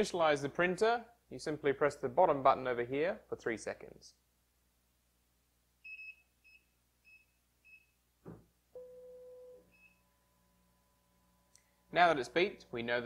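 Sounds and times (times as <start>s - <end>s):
knock: 8.2s - 8.5s
short high beeps: 8.8s - 10.0s.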